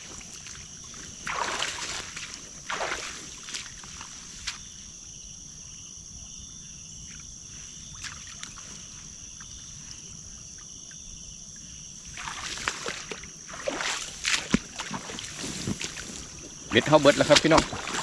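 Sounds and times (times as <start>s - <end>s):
water sloshing and splashing: 0.0s - 4.8s, 7.1s - 10.7s, 12.0s - 18.0s.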